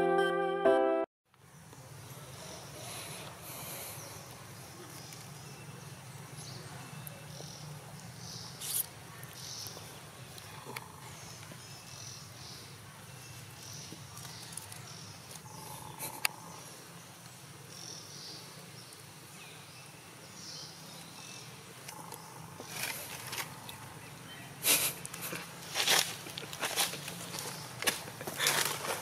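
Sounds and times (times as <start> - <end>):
low background noise: 1.3 - 29.0
monkeys rustling in dry leaves: 13.2 - 16.2, 22.6 - 23.6, 24.6 - 29.0.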